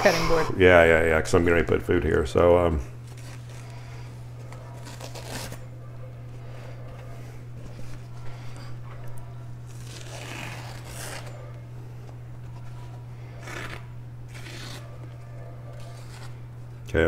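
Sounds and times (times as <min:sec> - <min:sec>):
steady low hum: 0:00.0 - 0:17.0
knife slicing through paper: 0:13.4 - 0:15.0.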